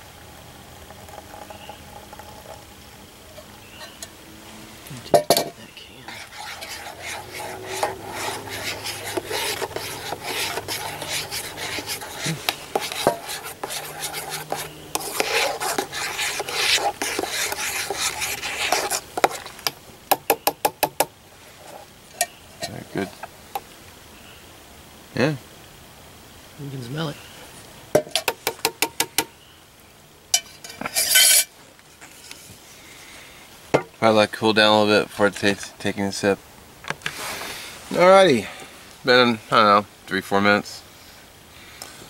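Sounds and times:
metal spoon stirring in mug: 6.1s - 19.5s, 30.4s - 31.5s.

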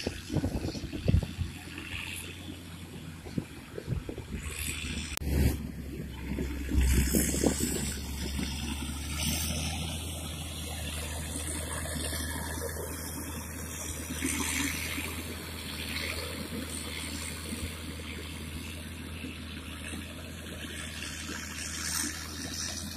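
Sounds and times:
wind noise on microphone: 0.0s - 2.3s, 3.0s - 9.4s
diesel engine humming: 0.0s - 22.9s.

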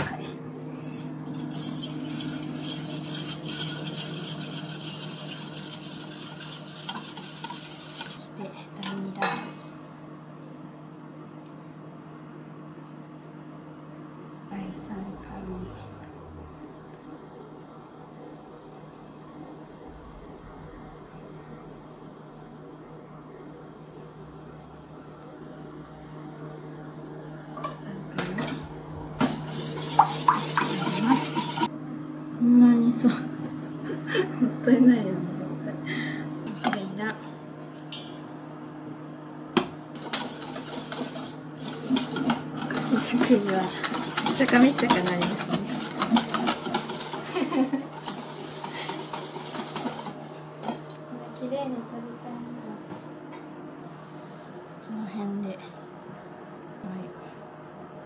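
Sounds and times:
steady low hum: 0.0s - 58.0s
whisk scraping metal bowl: 0.6s - 9.5s, 28.3s - 31.7s, 40.0s - 50.8s.

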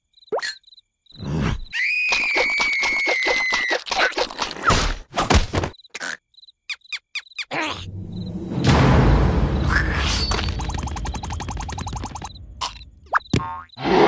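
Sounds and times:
high-pitched cartoon squeal: 1.7s - 3.9s
knocks and thumps: 9.6s - 13.6s.

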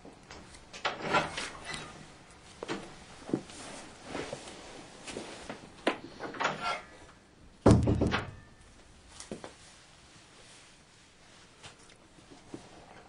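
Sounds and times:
heavy thump: 7.6s - 8.5s.

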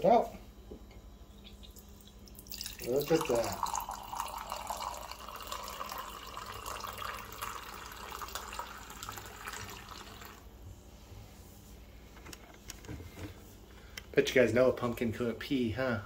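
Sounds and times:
cider trickling into a glass: 1.3s - 10.5s.

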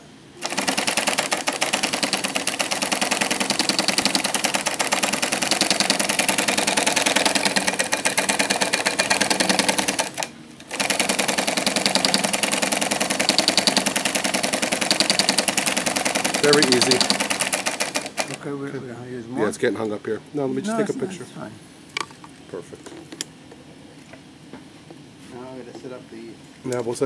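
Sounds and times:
sewing machine clattering: 0.4s - 18.4s.

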